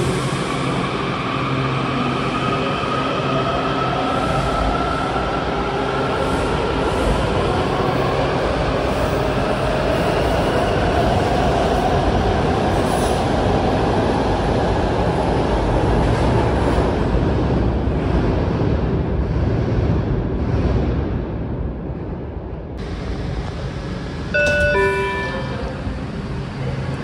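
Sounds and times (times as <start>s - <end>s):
train wheels rumbling on rail: 0.0s - 27.0s.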